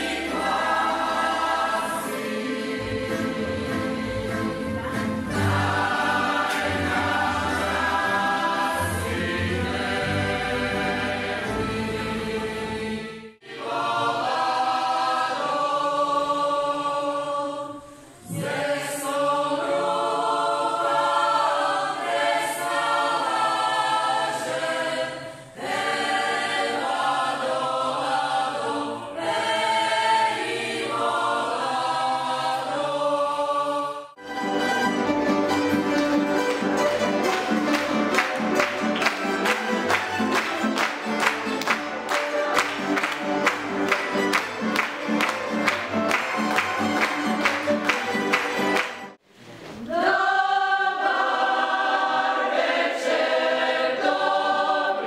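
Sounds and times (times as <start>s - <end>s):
tamburica ensemble playing: 0.0s - 13.1s, 34.2s - 49.2s
mixed choir singing: 0.0s - 49.2s, 49.8s - 55.0s.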